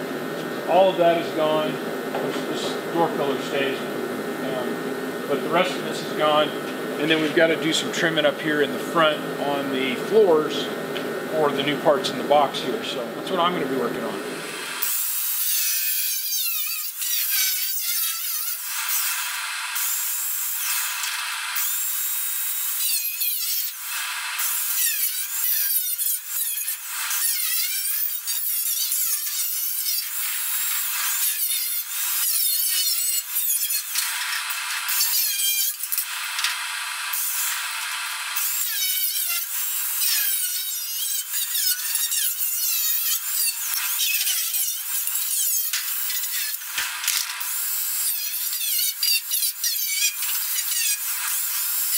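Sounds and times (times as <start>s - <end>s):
power tool cutting sheet metal: 14.2s - 51.9s.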